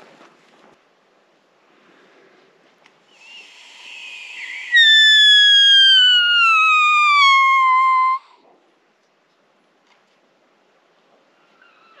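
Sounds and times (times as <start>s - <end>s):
stag whistle call: 3.2s - 8.2s
short rising squeal: 3.9s - 8.2s.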